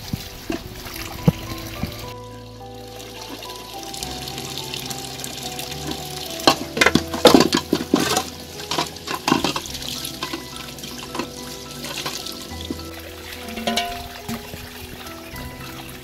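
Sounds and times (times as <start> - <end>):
water pouring onto stones: 0.0 - 16.0
metal cookware clanking and scraping: 5.2 - 15.1.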